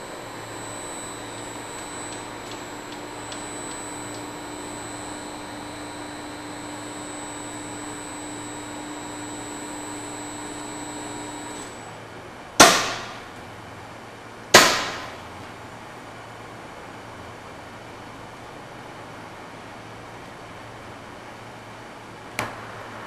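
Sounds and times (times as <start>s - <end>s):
screw feeder machine hum and whine: 0.0s - 15.8s.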